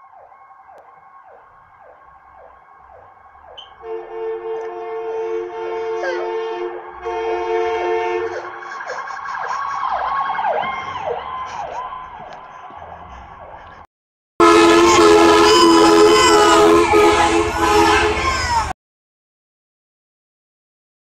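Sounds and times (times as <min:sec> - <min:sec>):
siren tones: 0:00.0 - 0:13.5, 0:14.4 - 0:18.2
ambulance siren yelping: 0:00.0 - 0:13.6, 0:14.4 - 0:18.7
two-tone air horn blasts: 0:03.6 - 0:08.5, 0:14.4 - 0:18.7.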